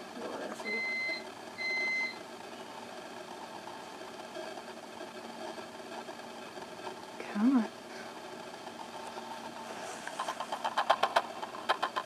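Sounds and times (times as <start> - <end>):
low steady hum: 0.0 - 12.0
electronic beeps: 0.6 - 2.2.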